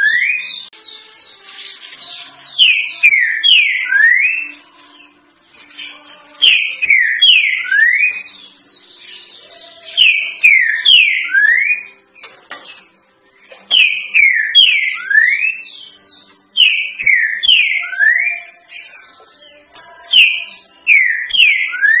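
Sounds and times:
bird whistling three-note song: 6.5s - 11.9s, 13.7s - 18.6s, 20.2s - 22.0s.

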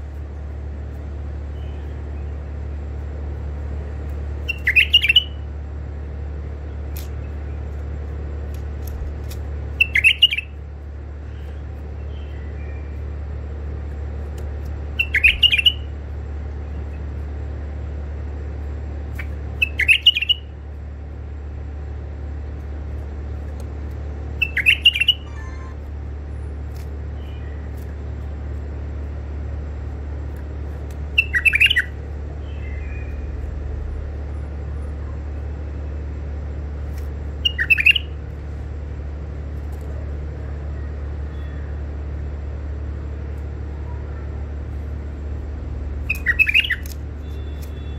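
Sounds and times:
steady low hum: 0.0s - 47.9s
bird calls: 1.5s - 2.4s, 4.4s - 5.4s, 9.7s - 10.6s, 11.2s - 13.0s, 14.9s - 15.9s, 19.1s - 20.5s, 24.3s - 25.8s, 31.1s - 33.5s, 37.4s - 38.2s, 46.0s - 47.9s.

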